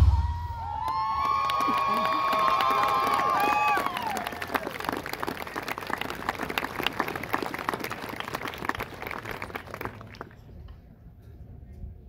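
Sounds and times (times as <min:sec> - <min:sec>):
audience applauding: 0:00.8 - 0:10.4.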